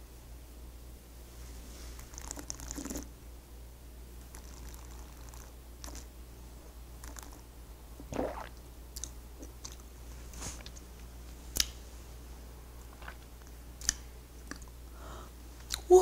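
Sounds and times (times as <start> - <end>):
mouth chewing and smacking: 4.3 - 6.1, 7.0 - 7.5, 8.1 - 9.9, 12.9 - 14.8.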